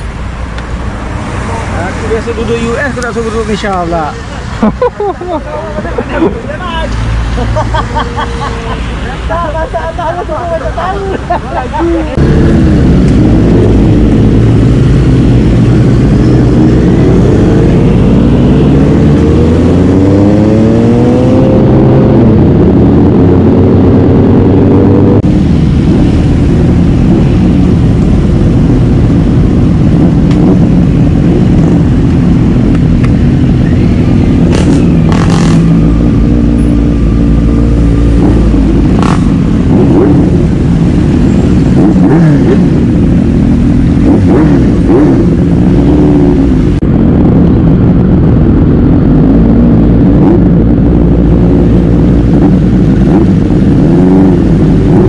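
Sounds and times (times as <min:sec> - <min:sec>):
motorcycle engine revving: 0:12.1 - 0:55.0.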